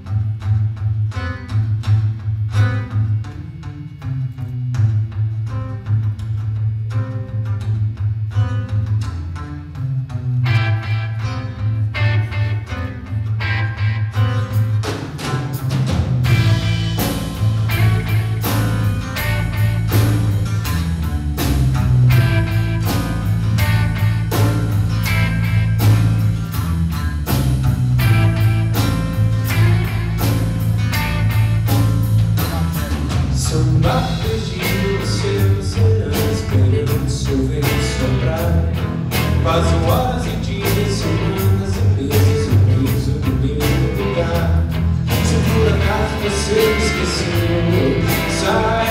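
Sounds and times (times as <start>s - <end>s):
drum kit beat: 0.0s - 48.9s
electric bass: 0.0s - 48.9s
electric guitars: 0.0s - 48.9s.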